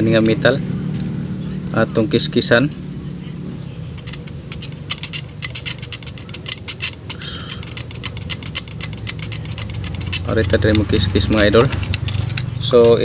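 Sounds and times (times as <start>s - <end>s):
knife blade scraping circuit board: 4.0s - 13.0s.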